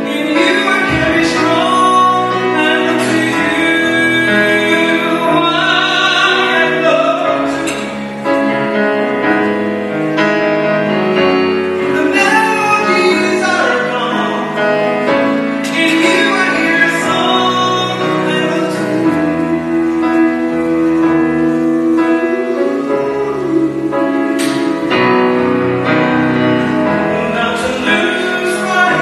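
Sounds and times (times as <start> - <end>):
man singing operatically: 0.0 - 8.0, 11.8 - 25.0, 27.0 - 29.0
grand piano: 0.0 - 29.0.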